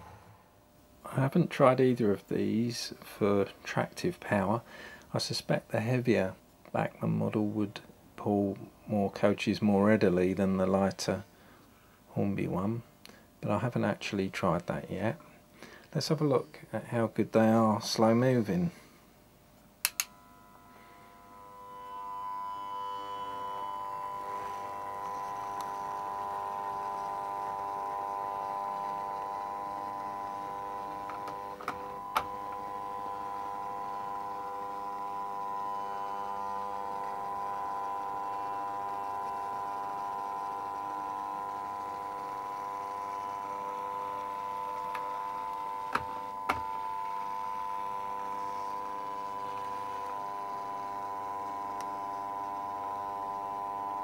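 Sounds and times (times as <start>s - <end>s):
model train motors humming: 19.9s - 54.0s.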